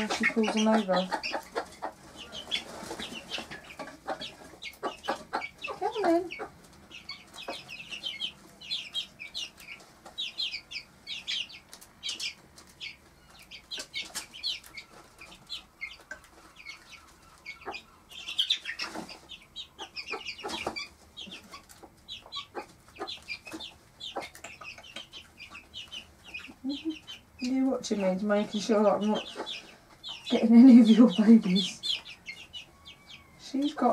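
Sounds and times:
chicks cheeping: 0:00.0 - 0:33.9.

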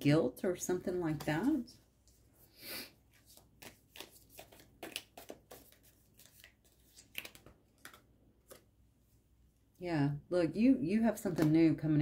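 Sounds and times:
playing cards shuffling: 0:03.1 - 0:08.7.

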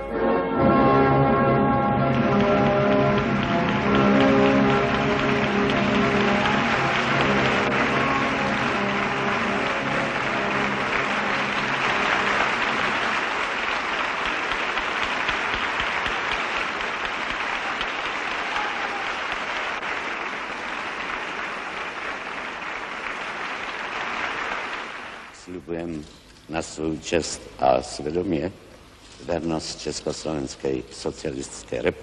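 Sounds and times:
music: 0:00.0 - 0:18.6
audience applauding: 0:02.0 - 0:25.5.

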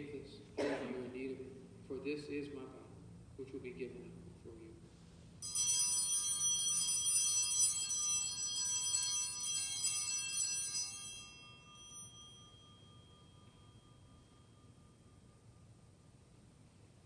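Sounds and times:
altar bells jangling: 0:05.4 - 0:15.8.

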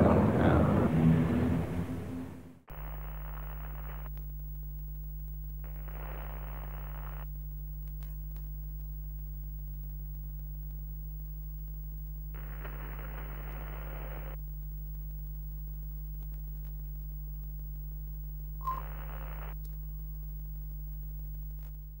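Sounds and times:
low electrical hum: 0:00.0 - 0:22.0
bursts of hiss: 0:02.7 - 0:04.1, 0:05.6 - 0:07.3, 0:12.3 - 0:14.4.

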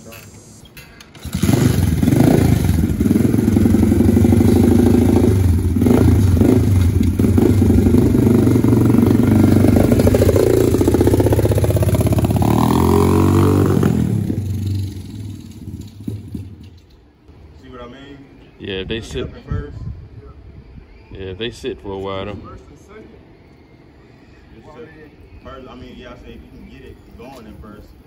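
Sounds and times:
small motorcycle engine revving: 0:01.2 - 0:16.7.

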